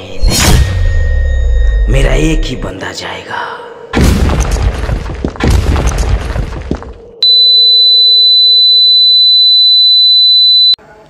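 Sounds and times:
high-pitched ringing tone: 0:00.7 - 0:02.6.

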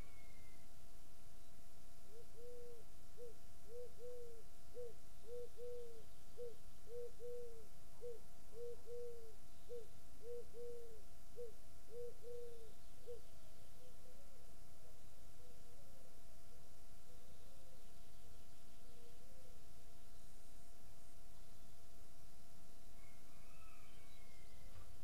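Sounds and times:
pigeon cooing: 0:02.1 - 0:16.1.

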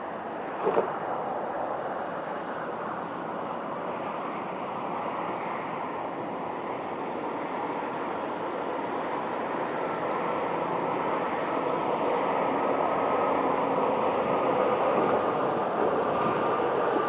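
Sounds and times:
distant town noise: 0:00.0 - 0:17.0
wind: 0:00.0 - 0:17.0.

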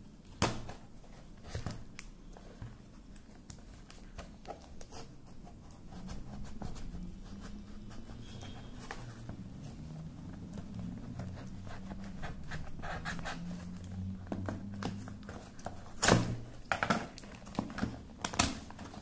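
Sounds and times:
paper and plastic rustling: 0:00.6 - 0:19.0.

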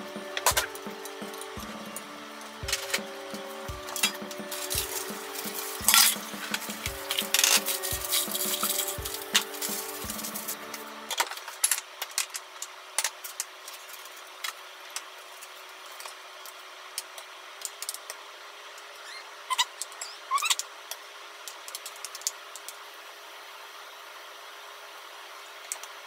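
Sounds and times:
faint steady hum: 0:00.0 - 0:26.0
short high squeaks: 0:19.0 - 0:20.6.

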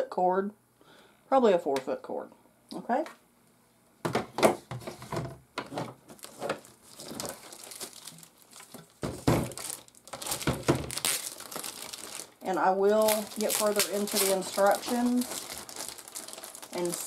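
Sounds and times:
plastic wrapping crinkling: 0:05.6 - 0:17.0.

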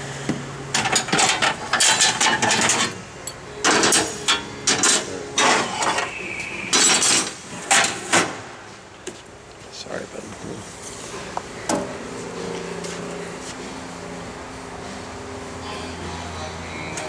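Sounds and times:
sliding metal doors clattering: 0:00.7 - 0:03.0.

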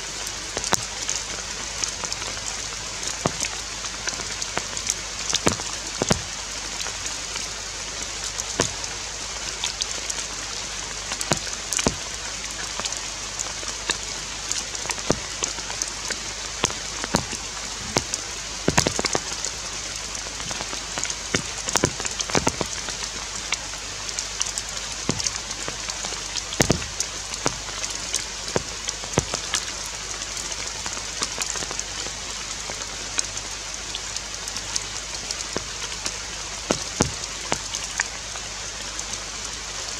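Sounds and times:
rain on foliage: 0:00.0 - 0:39.9
drops tapping: 0:20.4 - 0:22.8, 0:25.1 - 0:25.4, 0:26.6 - 0:27.6.

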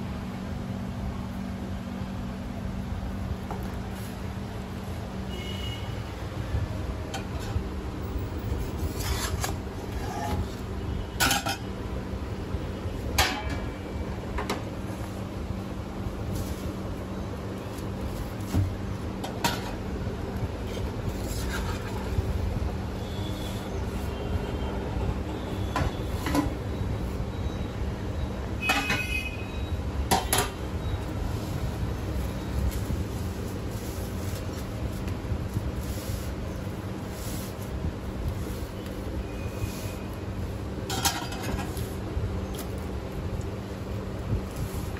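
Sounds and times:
constant hum: 0:00.0 - 0:44.9
low rumble of street traffic: 0:00.0 - 0:44.9
metal kitchen utensils clinking: 0:11.2 - 0:11.7, 0:40.9 - 0:41.8.

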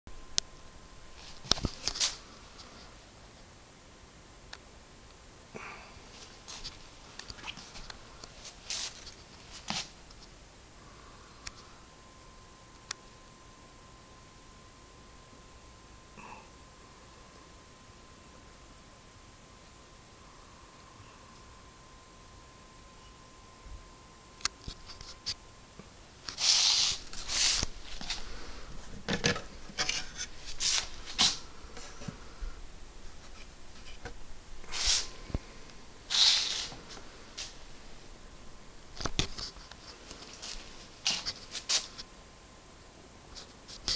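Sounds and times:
steady hiss: 0:00.1 - 0:43.9
handling rubs and rustles: 0:01.1 - 0:03.0, 0:06.1 - 0:10.3, 0:26.2 - 0:32.4, 0:33.0 - 0:38.0, 0:38.9 - 0:42.1.

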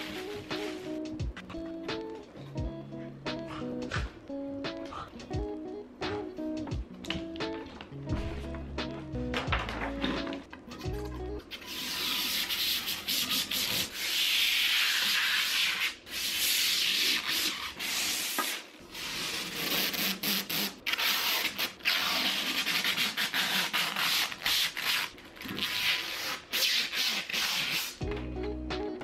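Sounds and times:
plastic film peeling off: 0:14.5 - 0:28.0.

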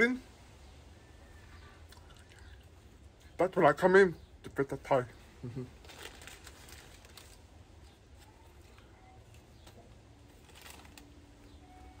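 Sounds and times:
faint low hum: 0:00.0 - 0:12.0
soft clicks and rustles: 0:05.8 - 0:11.6.

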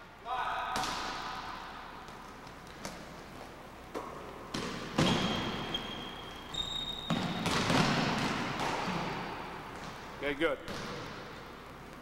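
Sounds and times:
basketball bouncing on hardwood: 0:07.0 - 0:09.2, 0:10.7 - 0:11.2.

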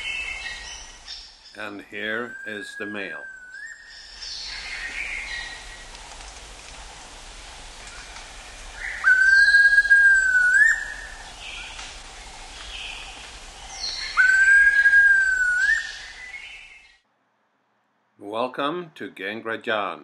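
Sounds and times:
faint bird chirps: 0:00.0 - 0:05.9, 0:07.8 - 0:17.0
forest insects humming: 0:00.0 - 0:16.9
bird whistling: 0:02.0 - 0:05.6, 0:08.8 - 0:11.7, 0:13.7 - 0:16.9.

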